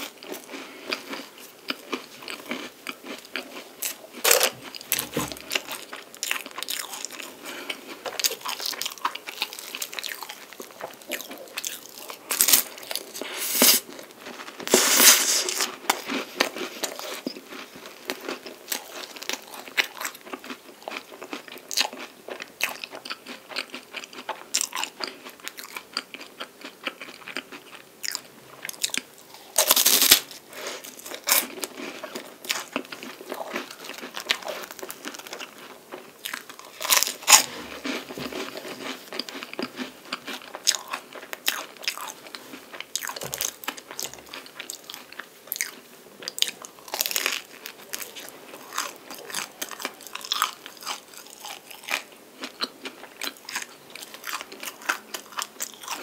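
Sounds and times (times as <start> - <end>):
crunchy pastry chewing: 0.0 - 56.0.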